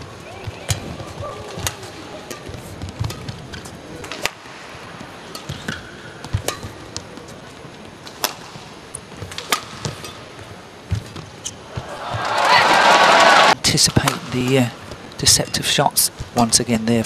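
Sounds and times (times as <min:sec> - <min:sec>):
rackets striking shuttlecock: 0:09.3 - 0:10.2.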